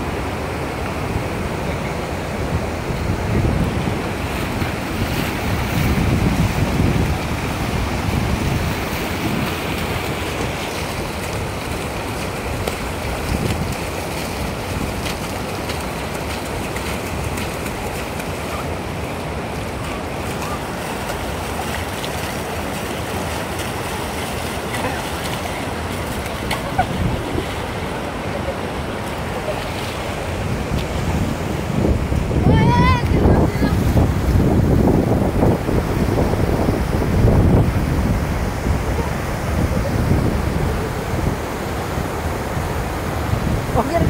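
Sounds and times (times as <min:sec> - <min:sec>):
river water rushing over rocks: 0:00.0 - 0:44.0
wind buffeting microphone: 0:01.0 - 0:44.0.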